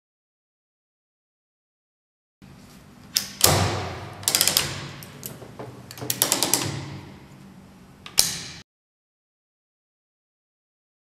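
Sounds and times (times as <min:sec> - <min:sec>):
strapping tool ratchet clicking: 0:05.9 - 0:06.8.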